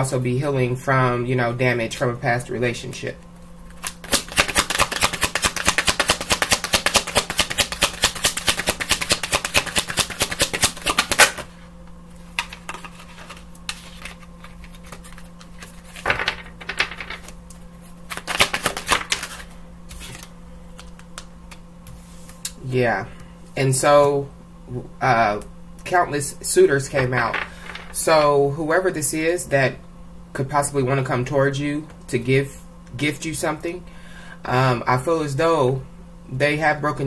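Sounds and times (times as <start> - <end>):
cards being shuffled: 3.7 - 11.5, 12.1 - 22.6.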